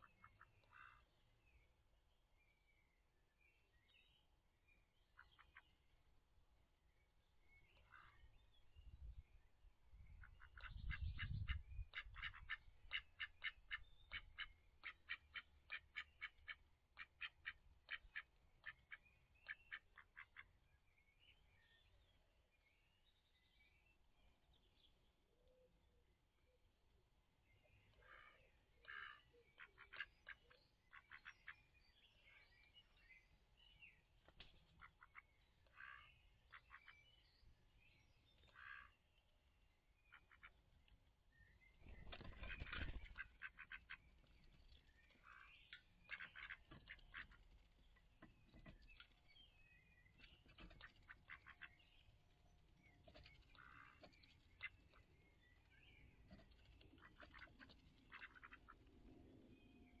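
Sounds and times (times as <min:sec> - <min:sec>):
soft duck calls: 0:10.2 - 0:20.6, 0:28.0 - 0:31.6, 0:46.1 - 0:47.4, 0:57.0 - 0:58.8.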